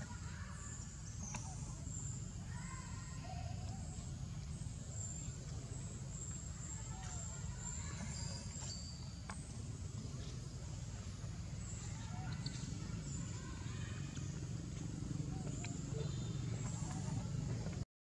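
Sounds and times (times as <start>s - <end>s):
steady low rumble: 9.1s - 17.8s.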